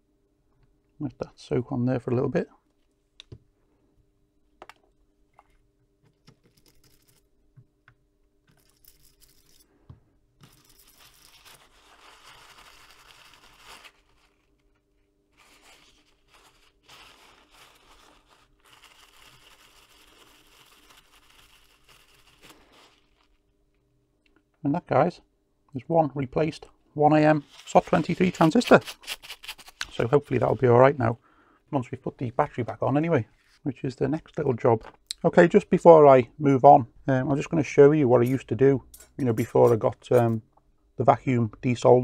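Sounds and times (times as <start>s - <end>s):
cloth wiping circuit board: 11.5s - 23.4s, 27.3s - 31.1s.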